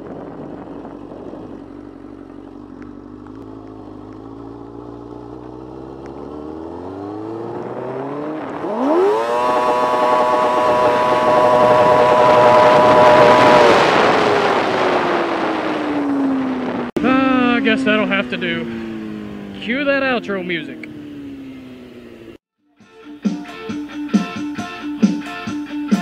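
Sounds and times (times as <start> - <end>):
wind rush: 0.0 - 2.1, 7.3 - 19.5
motorcycle engine revving: 0.0 - 22.4.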